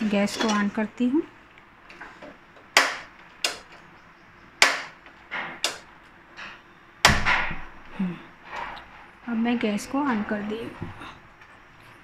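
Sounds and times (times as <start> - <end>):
gas stove igniter clicking: 2.8 - 3.8, 5.6 - 5.9.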